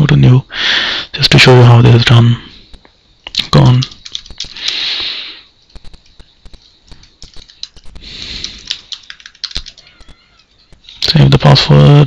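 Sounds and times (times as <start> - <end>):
soft hissing: 0.4 - 11.5
keyboard typing: 3.3 - 4.8, 5.6 - 11.5.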